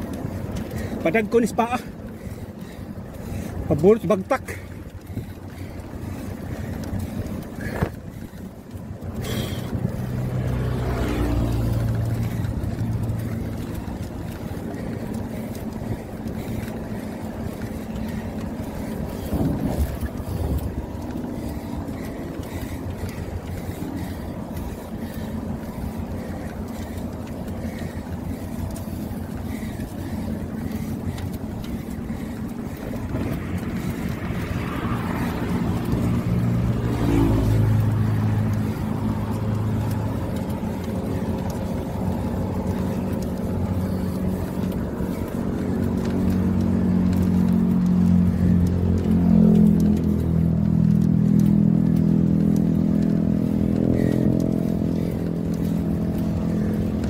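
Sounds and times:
low rumble of traffic: 0.0 - 57.0
wind on microphone: 18.4 - 21.8.

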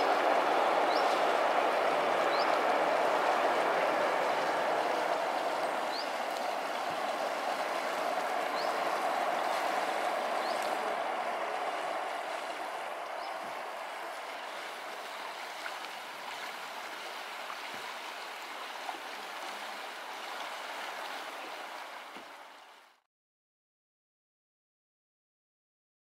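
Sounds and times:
river rushing over stones: 0.0 - 22.8.

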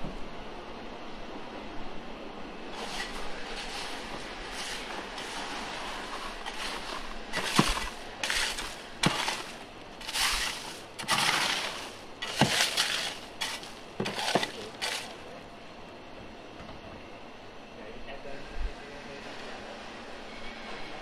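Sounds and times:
crushed ice crunching: 2.8 - 15.4
metal pole clicking on ice: 7.4 - 15.2.

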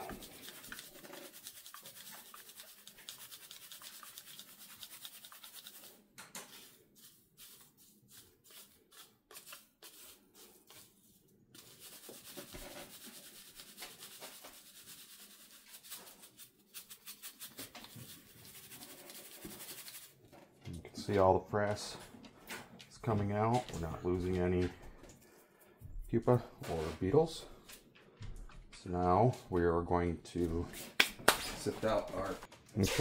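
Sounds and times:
quick shaking strokes: 11.6 - 20.1.

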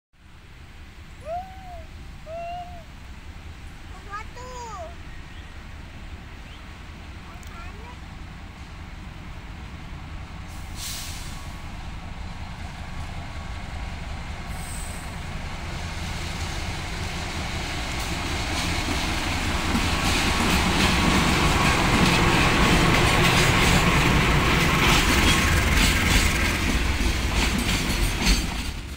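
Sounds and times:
locomotive engine rumble: 0.2 - 28.9
wheels clattering on rails: 11.6 - 28.9.

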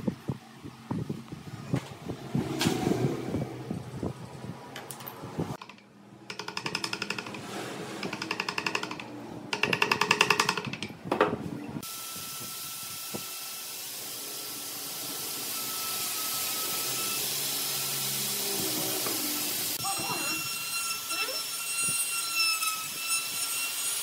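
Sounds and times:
chisel striking wood: 5.6 - 7.4, 8.0 - 11.3
steady hiss: 11.8 - 19.8.

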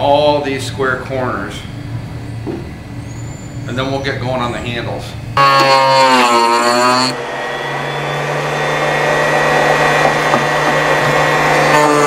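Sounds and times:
constant low hum: 0.0 - 12.0
router cutting wood: 5.4 - 12.0.

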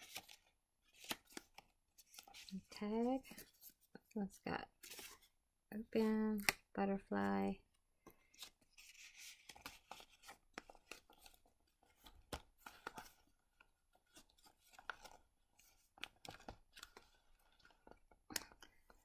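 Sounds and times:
paper pages rustling and flipping: 0.0 - 3.9, 4.8 - 5.3, 8.2 - 19.0.

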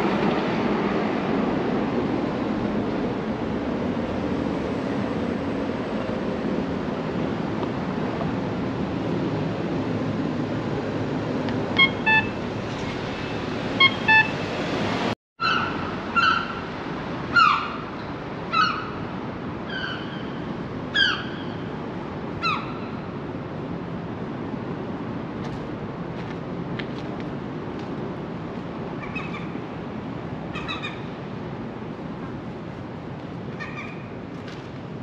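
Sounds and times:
city traffic noise: 0.0 - 35.0
short beeps: 11.8 - 12.4.

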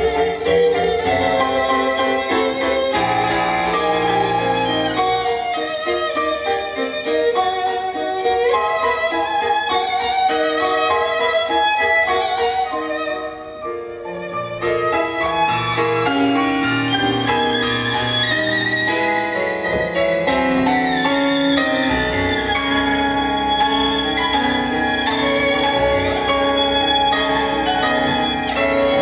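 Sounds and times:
violin long notes: 0.0 - 29.0.

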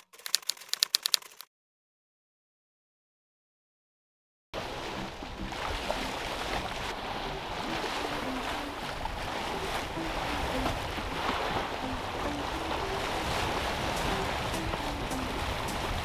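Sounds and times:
water rushing along a hull: 4.6 - 16.0.

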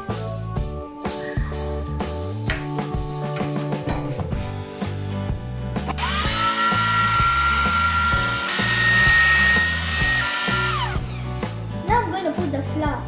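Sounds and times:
stand mixer motor whining: 5.9 - 11.4.

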